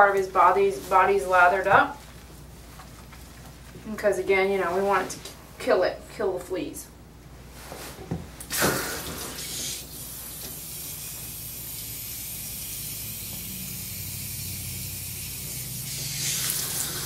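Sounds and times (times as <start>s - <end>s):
hose water spraying: 8.5s - 17.0s.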